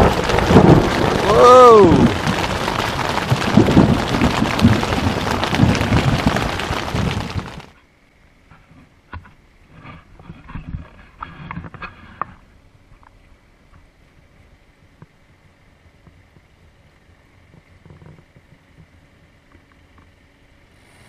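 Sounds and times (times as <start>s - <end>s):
thunder clap: 0.0s - 7.7s
heavy rain on tent: 0.0s - 7.8s.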